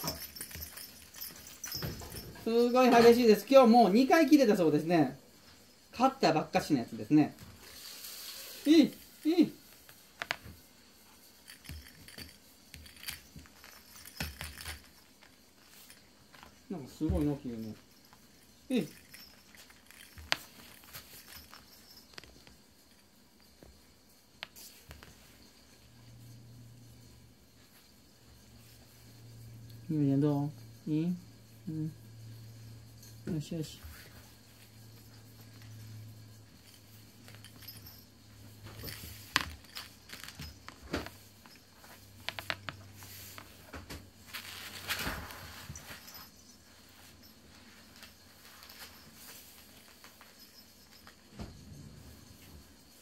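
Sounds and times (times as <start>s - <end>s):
soft rustles: 0.0s - 3.6s, 7.3s - 26.3s, 33.6s - 53.0s
small collar bell jingling: 0.0s - 4.4s, 6.7s - 27.1s, 30.4s - 43.4s, 44.3s - 53.0s
knocks and scuffs on floor: 17.0s - 17.3s.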